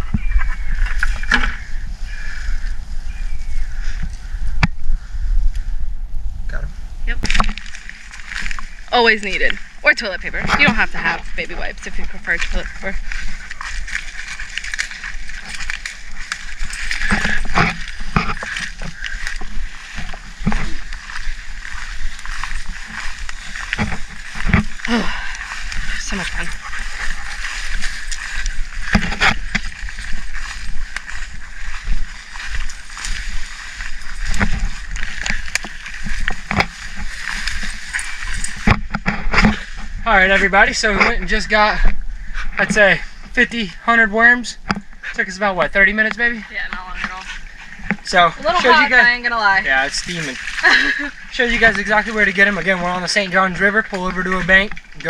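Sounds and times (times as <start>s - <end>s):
constant low rumble: 0.0s - 55.0s
brush rustling: 7.2s - 43.3s, 44.6s - 55.0s
footsteps crunching through dry leaves: 7.3s - 9.8s, 10.6s - 40.5s, 46.4s - 55.0s.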